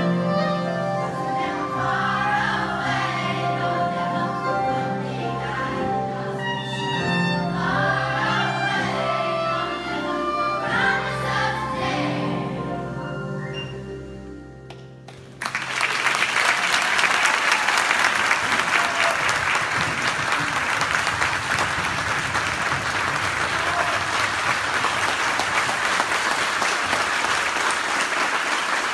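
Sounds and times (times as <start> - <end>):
children's choir singing: 0.0 - 13.8
audience applause: 15.2 - 28.9.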